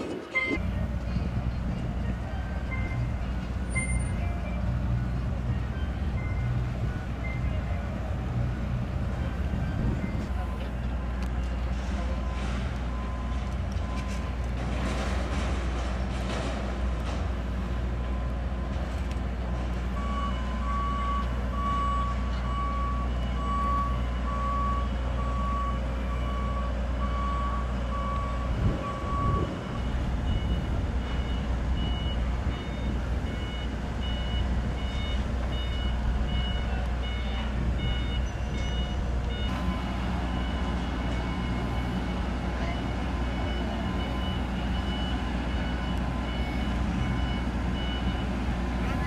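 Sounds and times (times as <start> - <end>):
steady low rumble: 0.0 - 22.6, 27.1 - 49.0
lower-pitched reversing alarm beeping: 2.0 - 4.9, 5.5 - 7.9, 19.9 - 49.0
higher-pitched reversing alarm beeping: 19.9 - 49.0.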